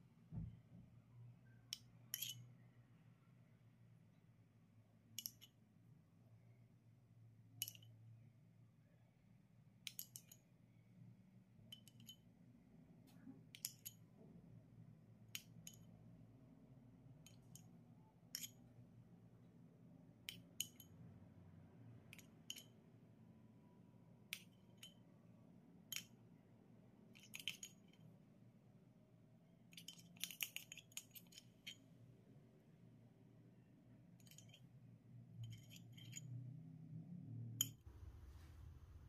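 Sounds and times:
faint room hum: 0.0s - 39.0s
metal spoon clinking on glass bowl: 1.8s - 2.5s, 11.7s - 12.2s.

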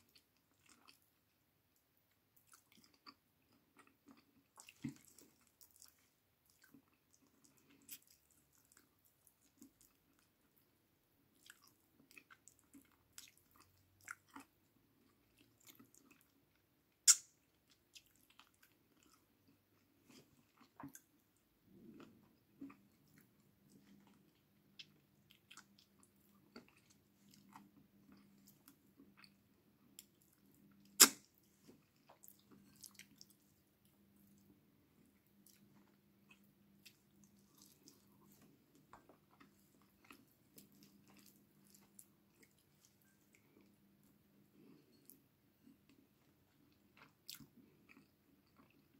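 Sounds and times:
person chewing with wet mouth sounds: 0.0s - 48.9s.

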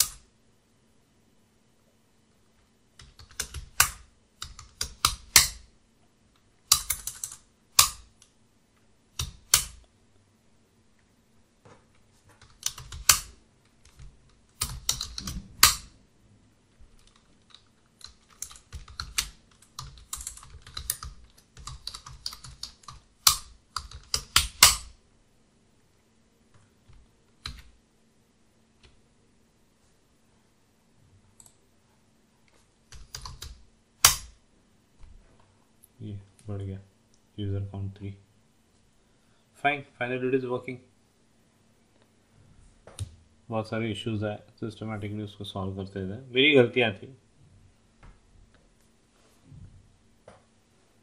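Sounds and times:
computer keyboard typing: 3.0s - 5.6s, 6.7s - 8.1s, 12.4s - 15.9s, 16.9s - 24.9s, 27.4s - 27.7s, 32.9s - 33.6s.

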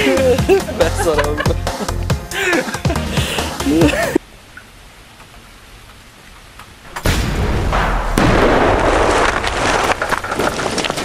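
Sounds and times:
debris crackling: 6.6s - 11.0s
explosion blast and roar: 7.0s - 11.0s.

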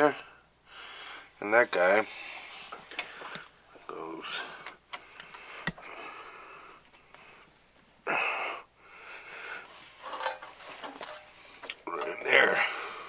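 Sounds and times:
man breathing heavily: 0.0s - 1.4s, 2.0s - 10.0s, 12.6s - 13.0s.

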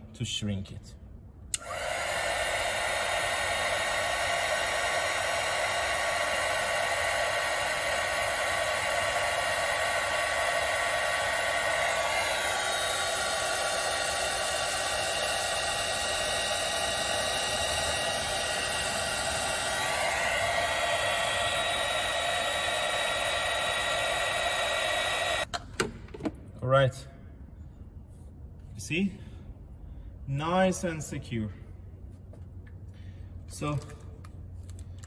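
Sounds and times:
heat gun blowing: 1.5s - 25.5s.

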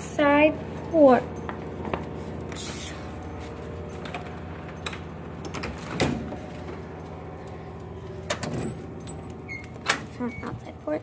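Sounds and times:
steady low hum: 0.0s - 11.0s
door handling clicks and knocks: 4.0s - 10.2s.

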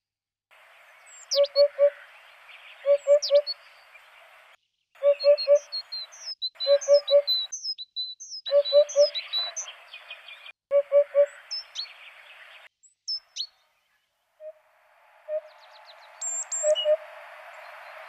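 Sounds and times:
birds chirping: 0.8s - 18.0s.

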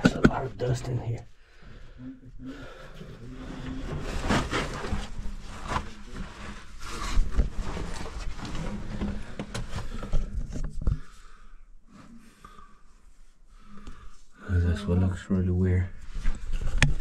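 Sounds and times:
body scraping over rock: 3.3s - 10.5s.

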